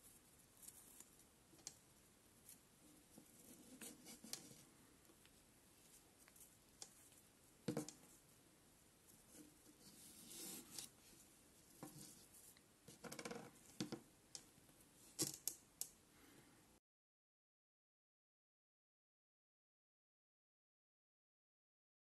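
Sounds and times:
cord sliding and rustling: 2.4 - 8.2, 9.1 - 12.6.

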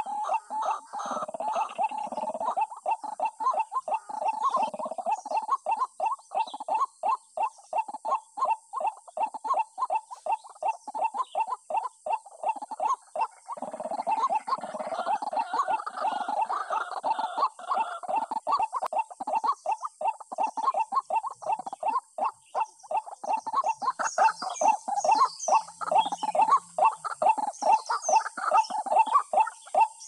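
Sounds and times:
bird repeated call notes: 0.0 - 30.0.

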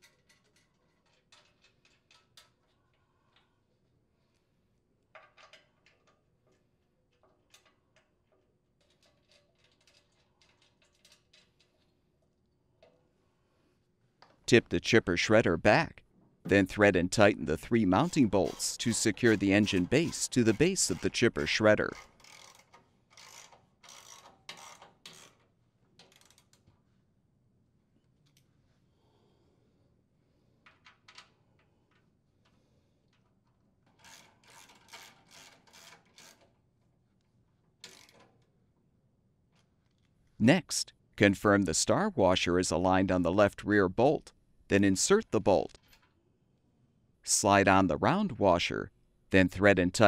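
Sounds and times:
small metallic screw clicks: 5.2 - 12.0, 18.4 - 25.4, 37.8 - 38.5.

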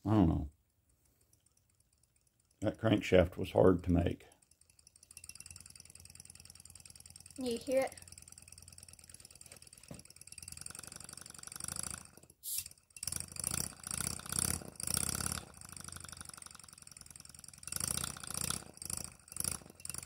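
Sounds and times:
model air engine exhaust puffs: 0.0 - 20.0.

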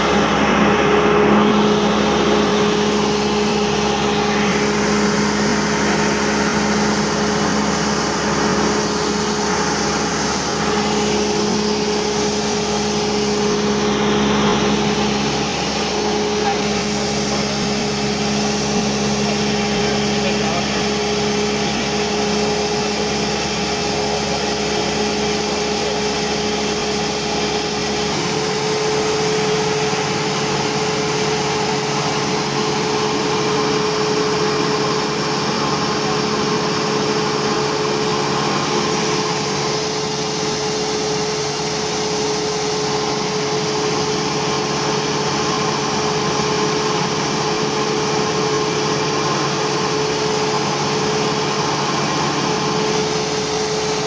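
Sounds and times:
aircraft engine and propeller drone: 0.0 - 54.0.

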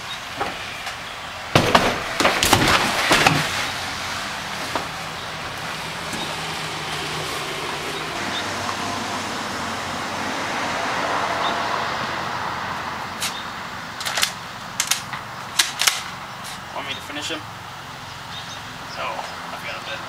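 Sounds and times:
vehicle passing: 0.0 - 20.0
sharp clicks and knocks: 14.0 - 16.1.

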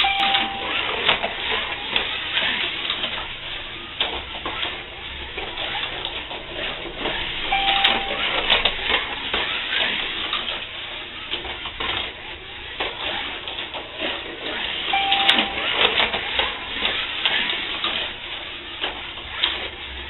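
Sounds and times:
short beep: 0.0 - 1.0, 7.5 - 8.6, 14.9 - 16.1.

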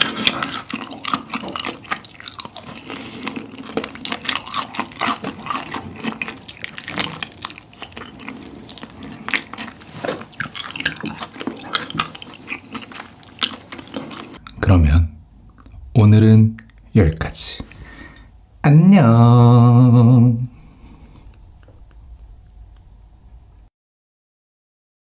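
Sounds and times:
wet chewing and lip-smacking: 0.0 - 14.6.

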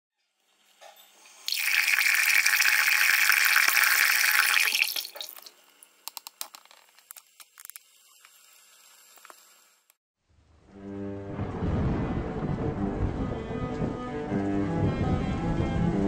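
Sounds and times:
faucet running into a sink: 1.3 - 5.9, 7.0 - 9.8.

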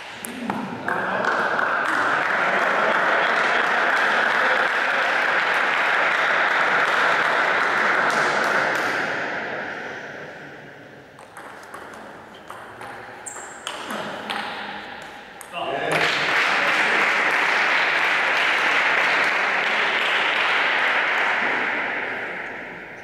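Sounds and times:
table tennis ball bouncing: 0.0 - 3.0, 11.2 - 15.6
spectators applauding: 1.2 - 8.9, 15.9 - 22.2.

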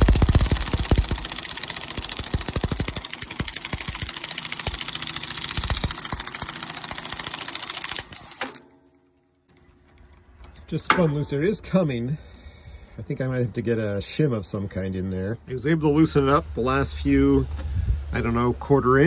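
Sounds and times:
drill motor with rapid clicking: 0.0 - 8.6.

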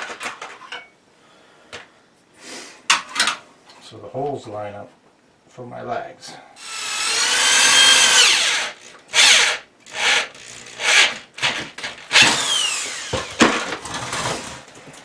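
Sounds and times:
cordless drill motor whine: 6.6 - 13.4
drill sharp clicks: 6.6 - 13.5.

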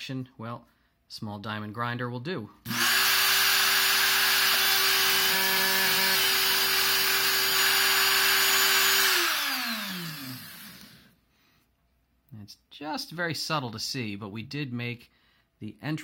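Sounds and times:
rotary tool grinding: 2.7 - 11.1.

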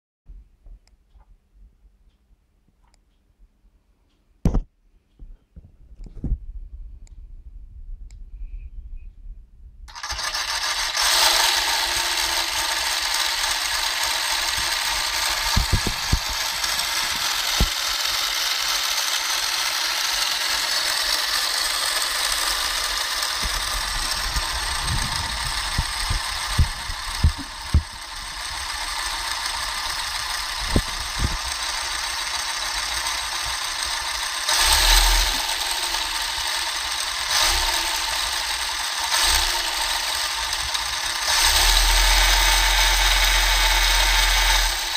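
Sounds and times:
model engine rattling: 9.9 - 44.9.

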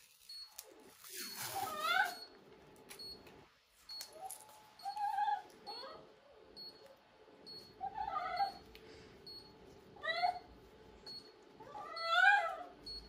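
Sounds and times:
pet animal crying: 1.6 - 2.3, 4.8 - 6.2, 7.7 - 8.6, 10.0 - 10.5, 11.6 - 12.9.

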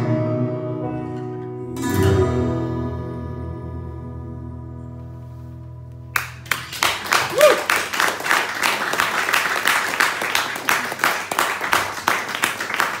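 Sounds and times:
audience applauding: 6.2 - 13.0
listener whooping: 7.1 - 7.8.

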